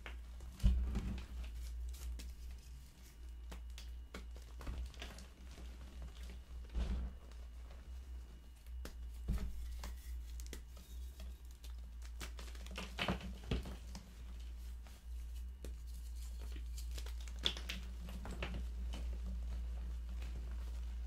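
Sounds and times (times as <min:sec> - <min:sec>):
hands crushing chalk: 0:08.7 - 0:13.9, 0:15.0 - 0:18.5.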